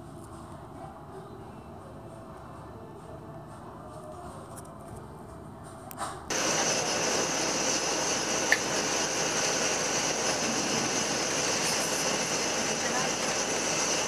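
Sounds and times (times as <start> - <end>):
turboprop engine drone and whine: 6.3 - 14.0.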